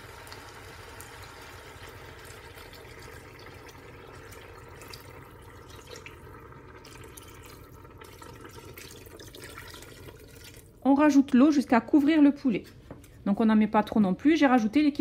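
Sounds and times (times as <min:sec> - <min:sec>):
water pouring into pot: 0:00.0 - 0:10.8.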